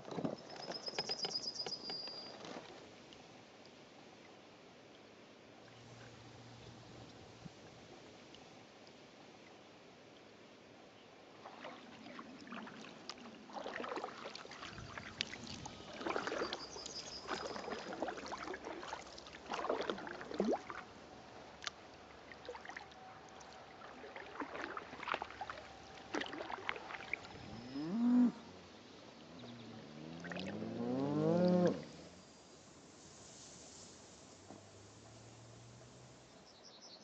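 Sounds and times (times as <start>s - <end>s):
paddle strokes splashing: 11.3s - 36.5s
cow mooing: 27.6s - 28.5s, 29.9s - 32.0s.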